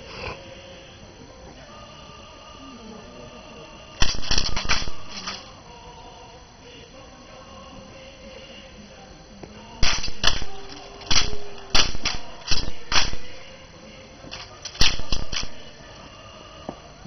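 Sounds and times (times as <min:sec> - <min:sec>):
rifles clacking in drill: 0:04.0 - 0:05.5, 0:09.8 - 0:13.6, 0:14.3 - 0:15.7.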